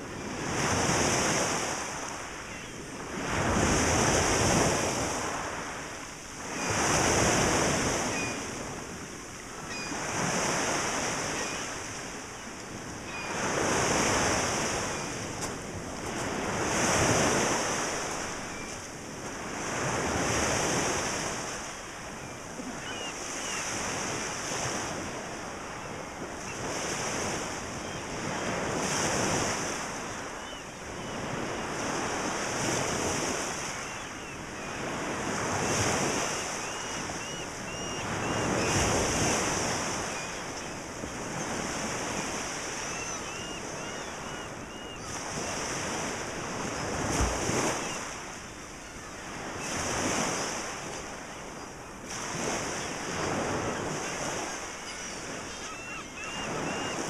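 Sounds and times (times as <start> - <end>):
faint gull calls: 6.4 - 8.5, 9.6 - 12.0, 13.0 - 18.8, 22.1 - 24.8, 25.6 - 48.2, 52.7 - 57.0.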